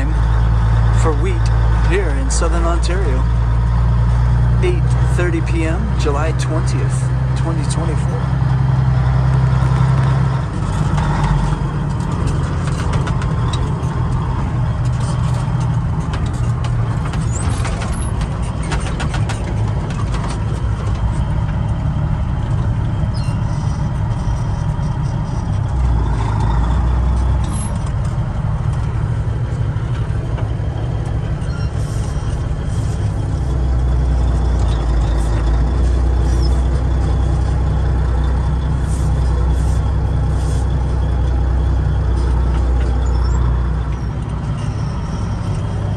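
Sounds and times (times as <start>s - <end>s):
diesel engine drone: 0.0s - 45.9s
light knocks and rattles: 10.6s - 23.0s.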